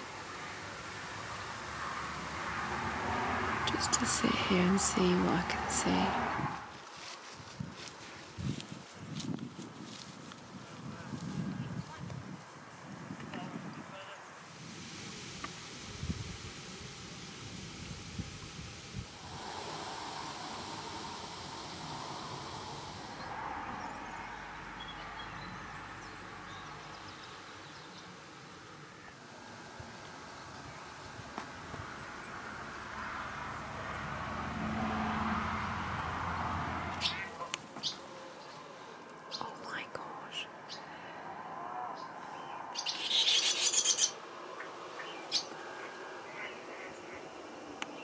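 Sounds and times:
background hiss: 0.0 - 41.4
reed warbler chirps and ticking: 36.9 - 38.6, 42.3 - 48.0
swallow twittering: 37.0 - 38.0, 42.5 - 47.3.

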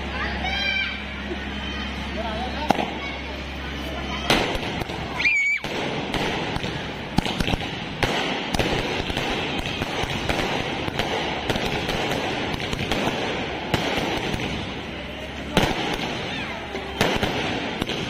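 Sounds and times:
fireworks crackling: 2.5 - 18.0
fireworks bangs: 4.2 - 18.0.

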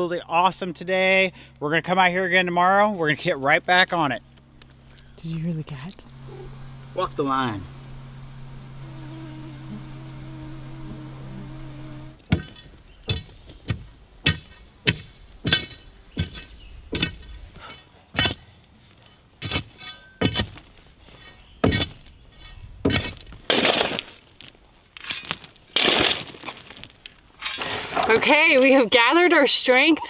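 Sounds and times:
buzzing insect: 5.9 - 12.3
shovel striking rocky gravel: 12.3 - 18.5, 19.4 - 28.4
shovel scraping dirt and stones: 12.3 - 28.4.

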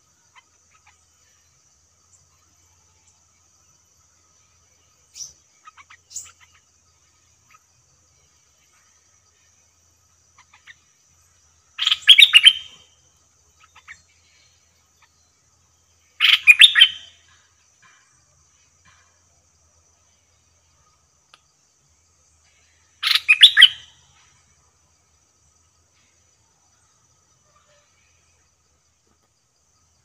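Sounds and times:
faint bird chirps: 0.0 - 30.0
bulbul singing warbled phrases: 11.7 - 12.8, 16.1 - 17.1, 23.0 - 23.8.

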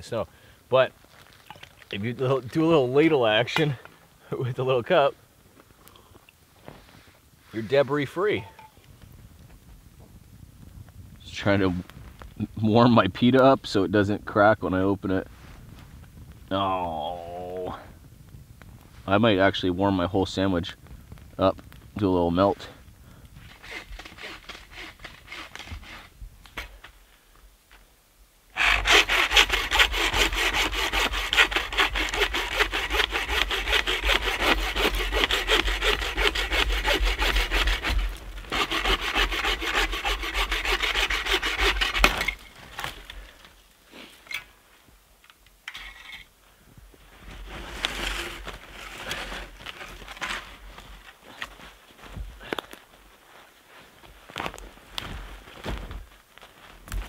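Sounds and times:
bow saw cutting a log: 23.5 - 26.1, 28.6 - 42.4
rustles and knocks: 54.0 - 57.0.

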